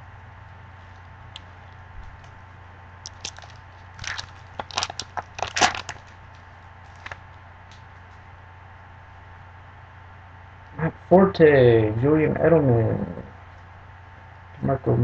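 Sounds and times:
foil wrapper tearing and crinkling: 0:03.1 - 0:07.2.

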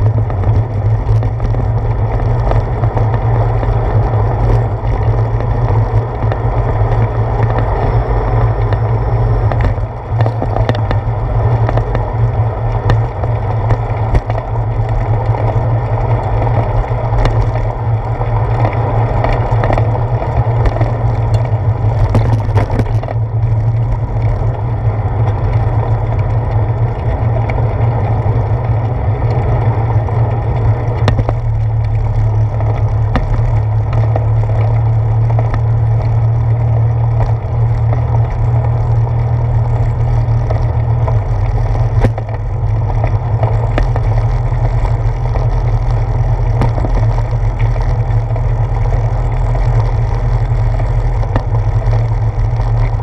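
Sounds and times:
bicycle rolling on pavement: 0:00.0 - 0:53.0
wind buffeting microphone: 0:00.0 - 0:53.0
small knocks from bumps: 0:08.6 - 0:17.7, 0:18.5 - 0:24.6, 0:31.0 - 0:36.2, 0:37.1 - 0:53.0.

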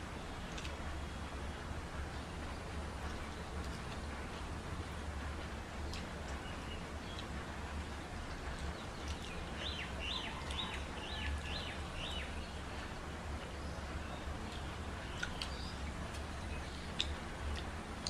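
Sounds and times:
low background hum and hiss: 0:00.0 - 0:18.0
bird chirping: 0:08.6 - 0:17.1.

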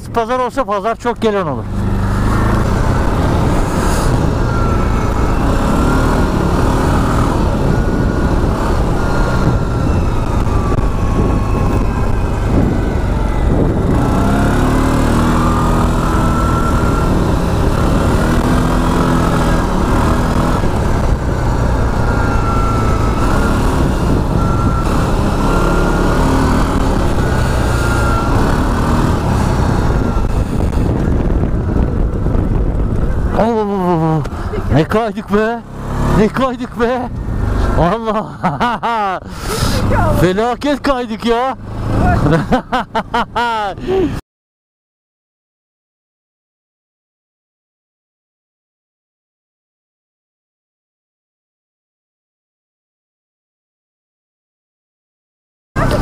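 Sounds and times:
quad bike engine revving: 0:01.3 - 0:44.1, 0:55.8 - 0:56.0.

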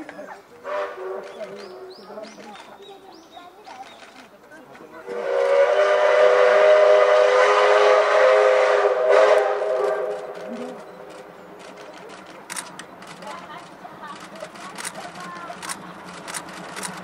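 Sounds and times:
steam locomotive whistle blast: 0:00.6 - 0:01.2, 0:05.1 - 0:10.4.

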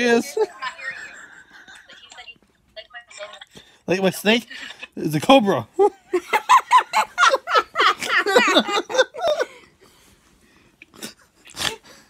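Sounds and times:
laughter: 0:00.0 - 0:02.2, 0:05.8 - 0:09.7.

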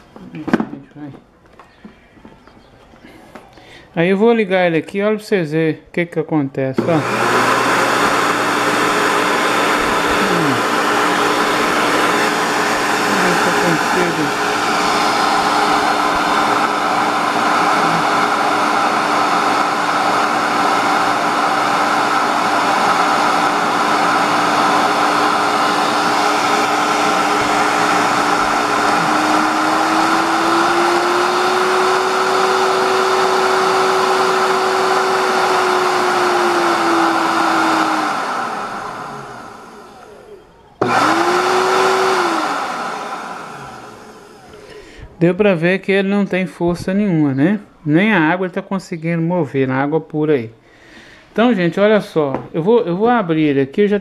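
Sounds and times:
blender motor humming: 0:06.8 - 0:45.0.

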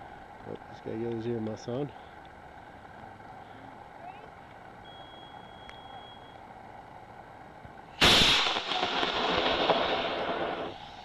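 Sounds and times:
rocket motor rushing burn: 0:08.0 - 0:11.0.

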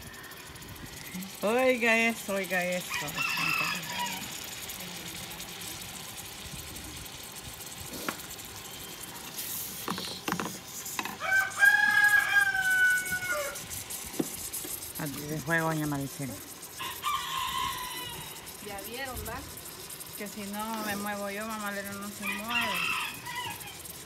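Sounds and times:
rooster crowing: 0:00.0 - 0:01.1, 0:02.7 - 0:04.8, 0:11.0 - 0:13.8, 0:16.7 - 0:18.7, 0:21.8 - 0:24.0.

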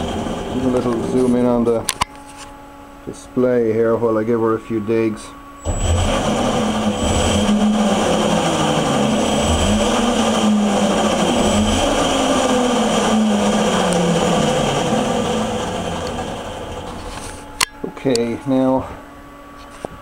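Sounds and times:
electric motorcycle motor whirring: 0:05.6 - 0:17.6.

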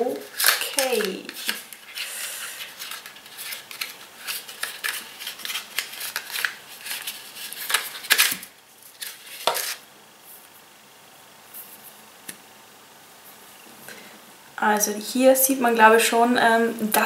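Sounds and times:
plastic packaging clicks and rustles: 0:00.2 - 0:09.8.

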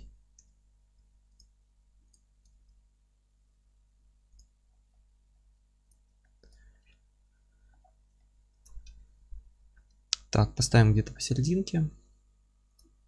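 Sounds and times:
computer mouse clicks: 0:04.3 - 0:04.6.

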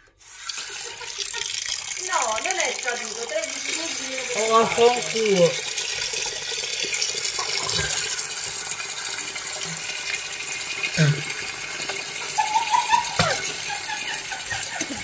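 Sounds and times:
tap water splashing into sink: 0:00.1 - 0:15.0
man grunting: 0:11.0 - 0:11.3.

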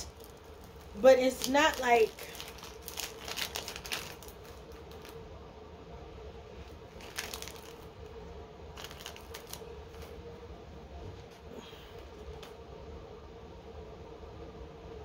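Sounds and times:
paper handling: 0:00.0 - 0:05.2, 0:07.0 - 0:07.8, 0:08.8 - 0:10.2
faint steady hum: 0:00.0 - 0:15.0.

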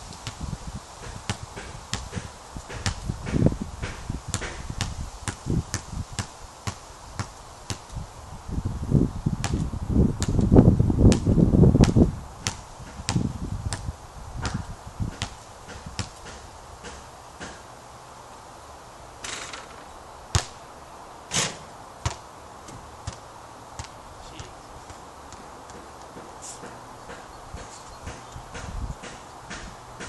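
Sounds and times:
wind rumbling on microphone: 0:00.0 - 0:17.0, 0:26.7 - 0:30.0
ball bouncing on wooden deck: 0:01.0 - 0:07.8, 0:11.8 - 0:17.6, 0:23.8 - 0:30.0
sharp knocks and taps: 0:14.5 - 0:17.6, 0:25.3 - 0:29.8.

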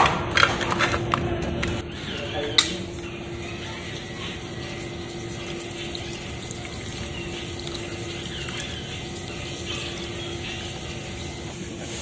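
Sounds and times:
soda pouring and splashing: 0:04.2 - 0:11.5.

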